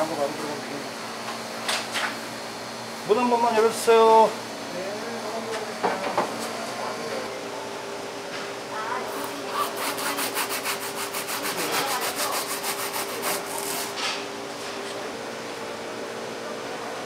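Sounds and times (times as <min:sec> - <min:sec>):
steady machine hum: 0:00.0 - 0:17.0
rapid scraping strokes: 0:09.6 - 0:13.9.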